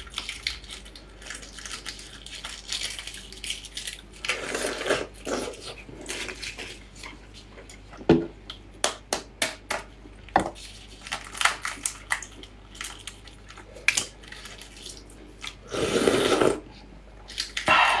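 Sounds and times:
egg shells crackling: 0.0s - 6.8s, 10.5s - 15.7s
wet squishing: 0.0s - 7.2s.

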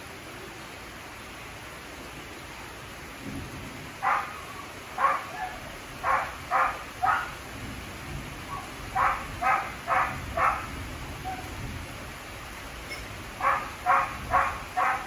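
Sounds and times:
heavy rain hissing: 0.0s - 15.0s
dog barking: 4.0s - 7.4s, 8.5s - 11.5s, 13.4s - 15.0s.

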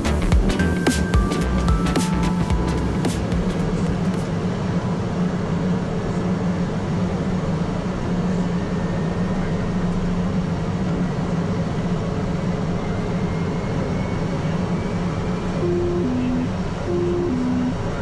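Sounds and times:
propeller plane engine drone: 0.1s - 18.0s.

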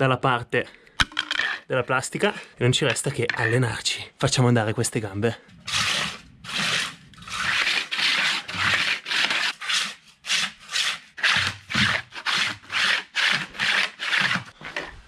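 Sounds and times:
plastic discs scraping on stone: 5.6s - 15.0s.

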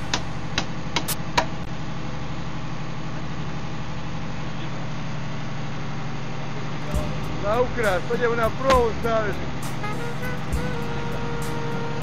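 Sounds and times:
boat engine running: 0.0s - 1.7s, 6.0s - 12.0s.

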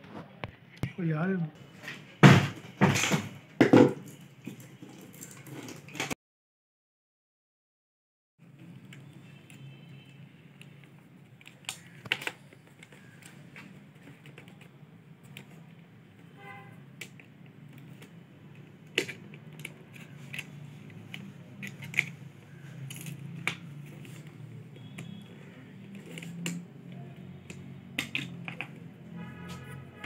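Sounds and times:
small clicks and taps on plastic: 10.6s - 15.6s.

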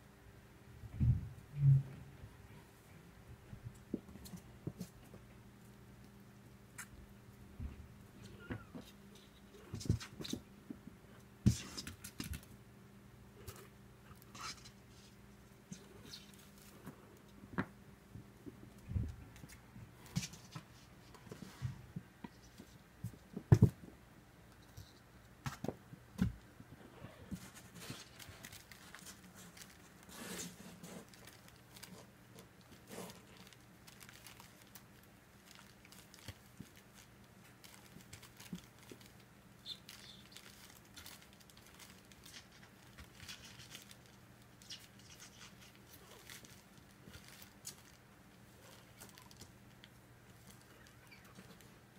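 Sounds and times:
faint steady hum: 0.0s - 51.9s
kitten paws scratching fabric: 19.3s - 23.4s, 26.8s - 34.8s, 35.4s - 51.7s.

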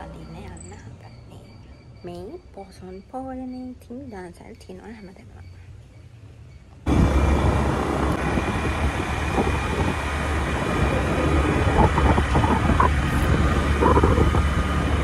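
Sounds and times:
road noise: 0.0s - 15.0s
motorcycle engine rumble: 6.8s - 15.0s
wind rushing over microphone: 6.8s - 15.0s.

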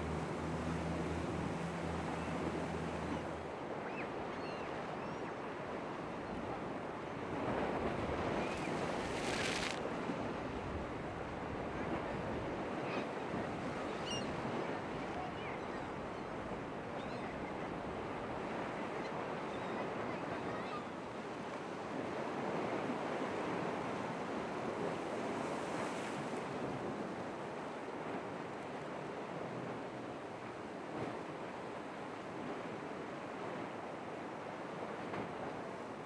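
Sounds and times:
low engine drone: 0.0s - 3.5s
surf rushing: 0.0s - 3.5s, 8.0s - 9.8s
wind: 0.0s - 36.0s.

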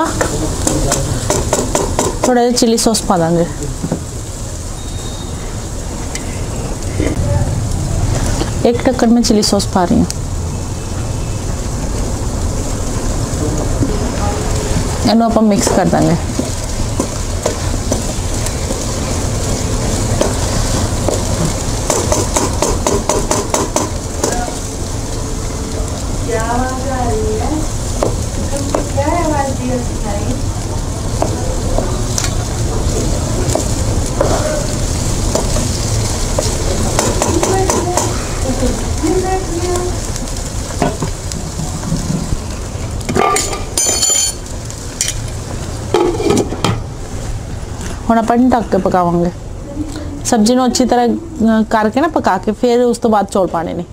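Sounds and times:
vegetables sizzling in a wok: 0.0s - 53.9s
spatula knocking against pan: 1.3s - 2.4s, 21.9s - 24.4s, 37.0s - 38.2s
brief high squeal: 4.8s - 5.5s
wooden spatula scraping wok: 14.7s - 24.2s, 31.2s - 39.8s, 40.6s - 43.8s.

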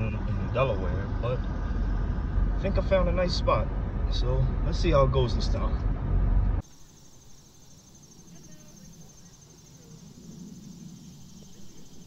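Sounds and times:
low rumble: 0.0s - 6.6s
insects trilling: 6.6s - 12.0s.

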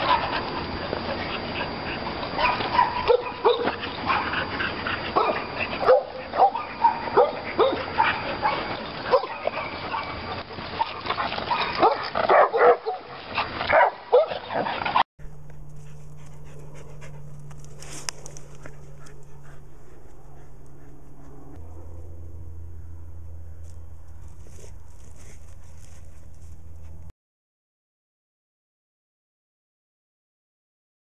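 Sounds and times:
dogs barking: 0.0s - 15.0s
low hum: 14.7s - 27.1s.

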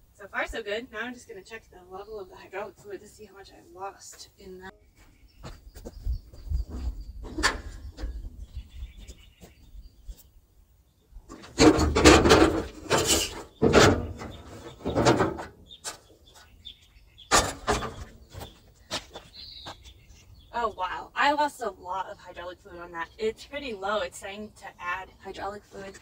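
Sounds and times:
metal door clanking and rattling: 11.3s - 15.7s, 17.3s - 18.2s.

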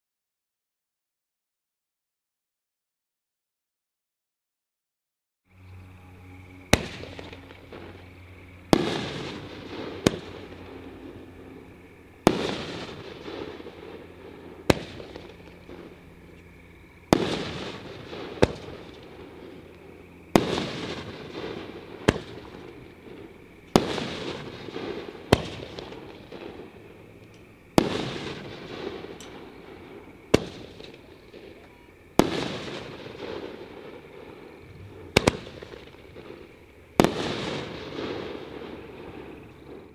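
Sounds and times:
firework launch crack: 6.7s - 16.5s, 17.1s - 39.9s.

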